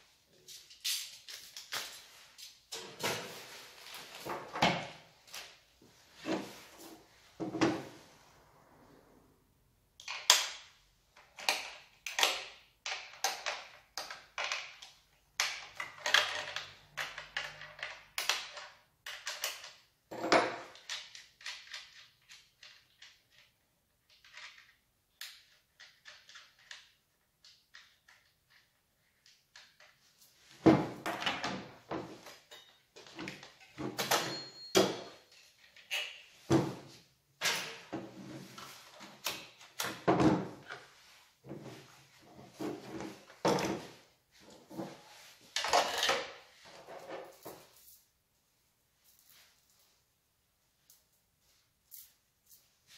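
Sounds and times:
knocks and scrapes of handled parts: 0.5 - 8.0, 24.1 - 48.1.

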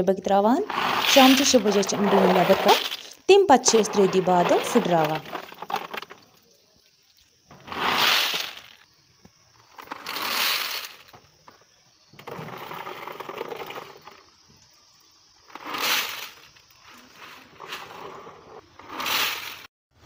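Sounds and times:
walnuts rattling: 0.6 - 6.6, 7.5 - 8.8, 9.6 - 11.5
walnuts clattering into a sack: 0.7 - 6.6, 7.5 - 8.8, 9.7 - 11.3.

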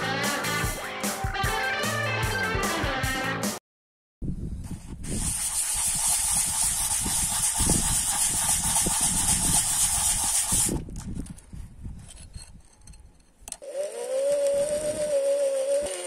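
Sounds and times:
steel blade on sanding disc: 5.1 - 10.8, 13.6 - 16.0.

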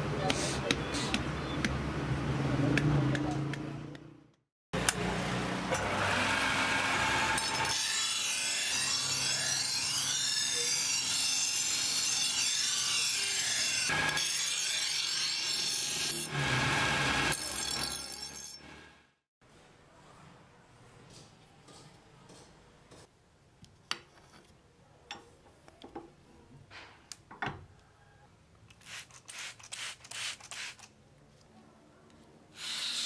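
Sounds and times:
bench grinder humming: 4.8 - 17.9
blade grinding with rasping screech: 6.4 - 18.8, 32.6 - 33.0.

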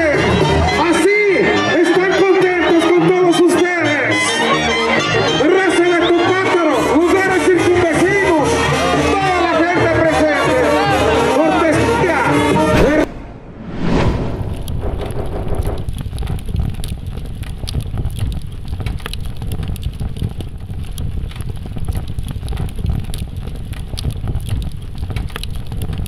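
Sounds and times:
scattered crackling: 12.7 - 26.0
steady low rumble: 12.8 - 26.0.

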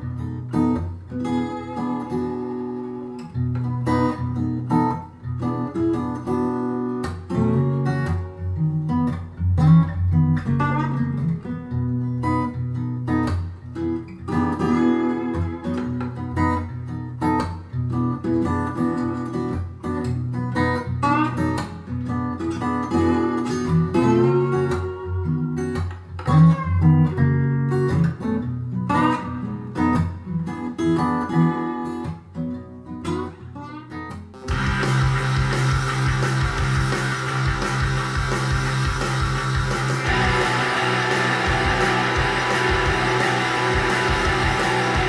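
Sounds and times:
acoustic blues guitar over loudspeakers: 0.0 - 45.0.

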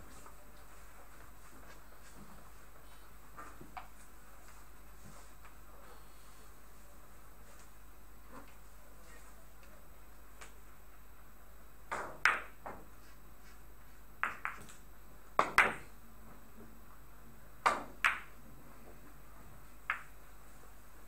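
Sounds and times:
billiard balls clicking: 11.9 - 12.8, 14.2 - 16.0, 17.6 - 18.4, 19.8 - 20.2.

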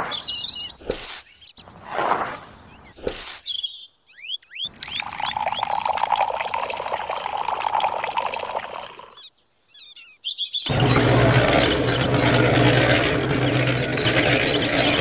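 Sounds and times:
water pouring into a metal can: 4.8 - 9.2.

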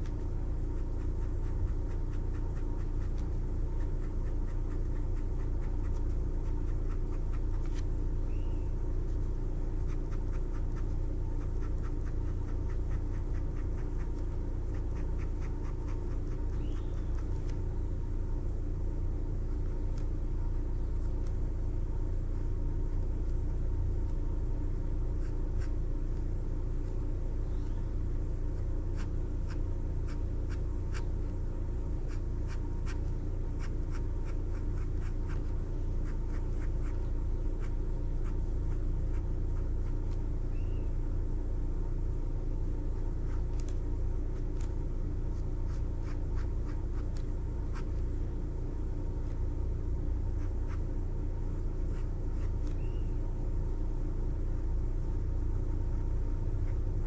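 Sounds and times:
steady low hum: 0.0 - 57.0
marker pen scratching on paper: 32.1 - 40.2, 45.3 - 48.0, 51.8 - 52.8.

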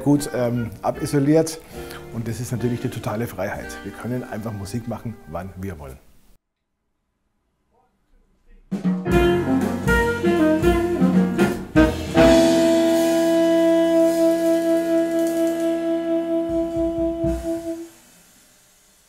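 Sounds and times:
drum hits: 8.7 - 17.9
jazz ensemble with saxophone and brass: 8.8 - 18.4.

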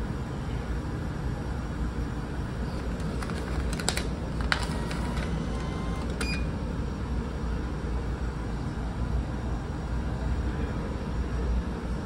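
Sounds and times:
vending machine clicks: 2.8 - 6.5.

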